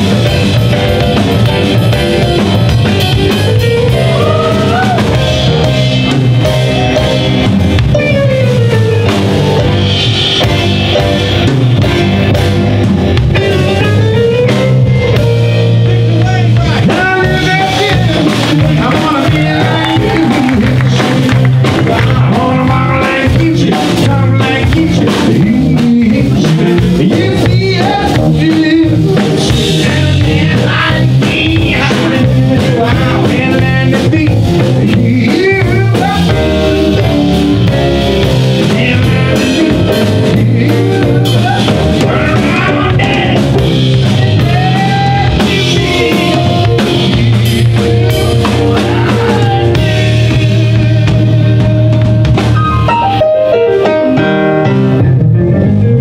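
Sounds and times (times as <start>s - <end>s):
blues-rock band playing: 0.0s - 56.0s
man singing: 15.7s - 52.1s.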